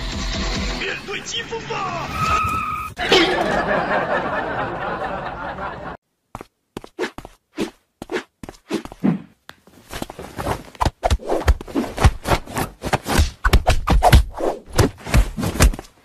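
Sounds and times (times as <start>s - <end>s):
fabric rustling: 8.5s - 13.3s.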